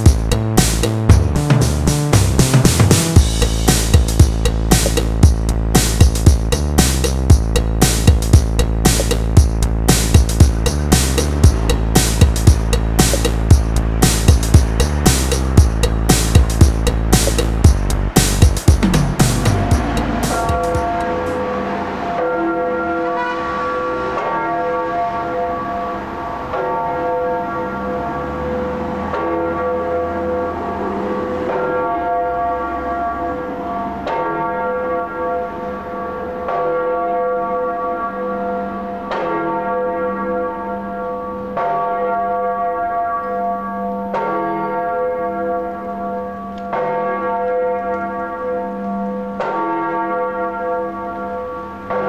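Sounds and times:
large bell ringing: 3.1 - 52.0.

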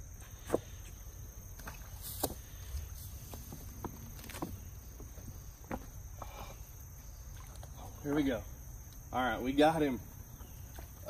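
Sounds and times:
small water splashes: 7.0 - 9.0, 10.3 - 11.0.

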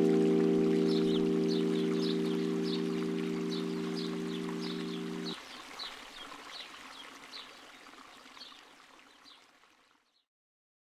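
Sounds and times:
held music chord: 0.0 - 5.4
flowing water: 0.0 - 10.2.

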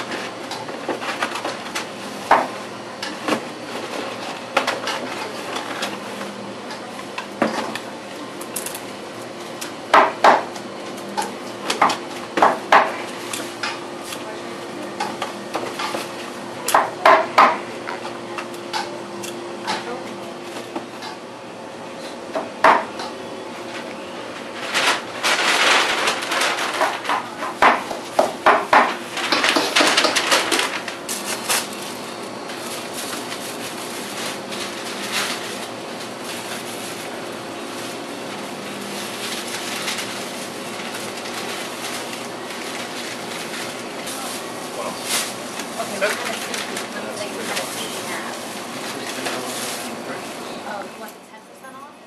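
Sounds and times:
paper bag rustling: 23.7 - 27.6, 28.9 - 50.4.

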